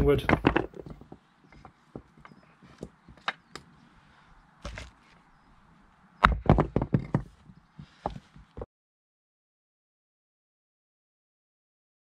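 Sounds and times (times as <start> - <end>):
light wooden clicks: 0.2 - 3.8.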